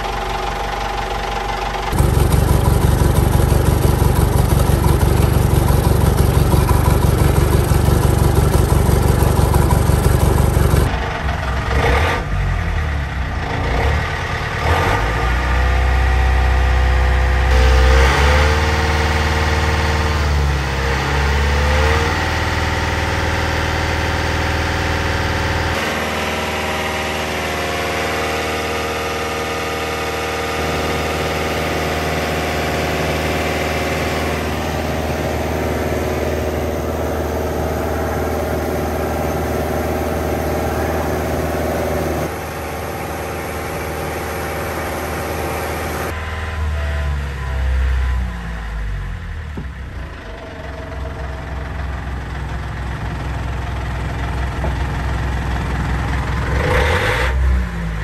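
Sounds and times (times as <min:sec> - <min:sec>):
marine diesel engine idling: 0:00.0 - 0:13.6, 0:16.4 - 0:20.8, 0:30.6 - 0:56.6.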